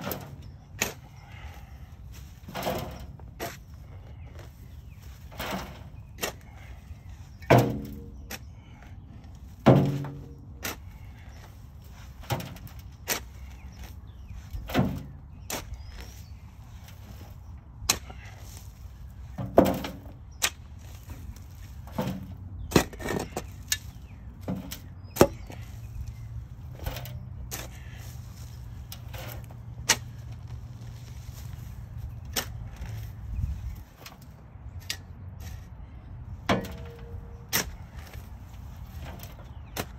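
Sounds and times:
shovel scraping and thudding in soil: 0.0 - 39.9
clods dropping into wheelbarrow: 2.1 - 6.8, 17.9 - 25.8.

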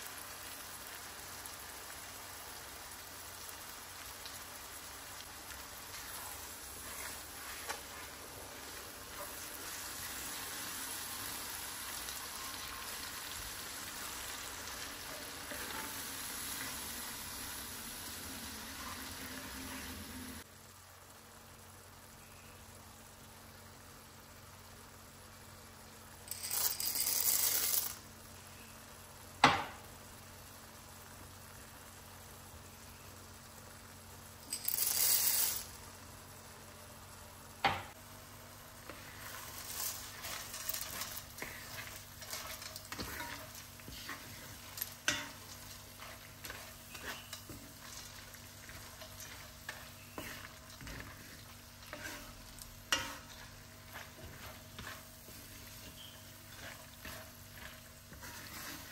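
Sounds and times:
low sizzle: 0.0 - 58.9
wooden spoon scraping: 5.8 - 10.6, 14.0 - 17.4, 38.7 - 58.9
dry pasta pouring into pot: 26.3 - 28.0, 34.4 - 35.8, 38.8 - 58.9.

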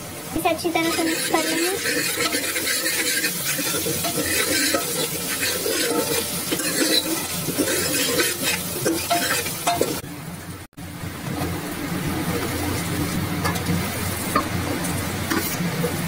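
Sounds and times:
oil sizzling in pan: 0.0 - 16.0
metal spoon scraping pan: 0.8 - 10.0.

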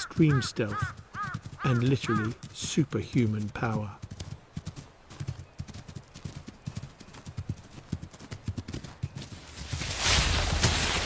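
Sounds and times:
paws thudding on snow: 8.3 - 11.0.

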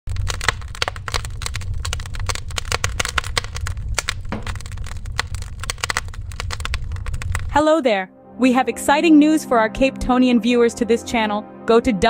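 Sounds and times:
wood fire crackling and popping: 0.1 - 7.6
low rumble: 0.1 - 11.6.

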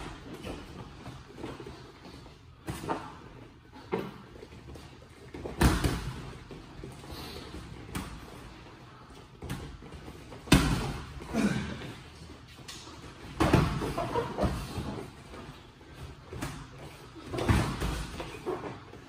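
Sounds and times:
boxing gloves punches thudding: 5.5 - 6.3.

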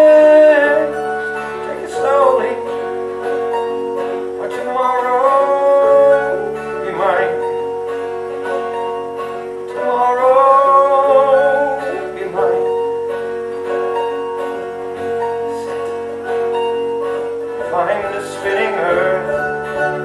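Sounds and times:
man singing: 0.0 - 3.0, 4.2 - 7.7, 9.6 - 12.9, 17.6 - 20.0
guitar chords: 0.0 - 20.0.

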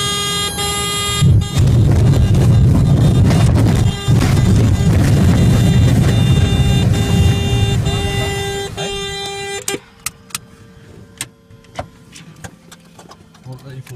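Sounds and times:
cockpit warning horn: 0.0 - 10.6.

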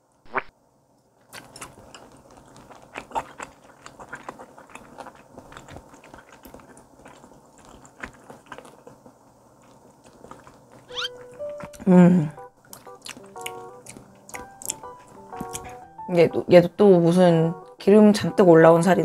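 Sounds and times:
close chewing with wet mouth clicks: 1.3 - 16.0.

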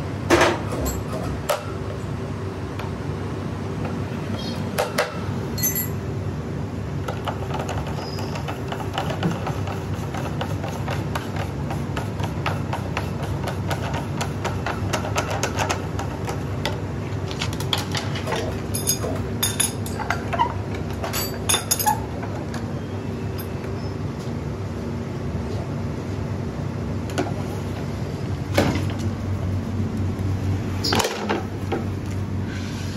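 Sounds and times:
workshop machinery humming: 0.0 - 32.9.

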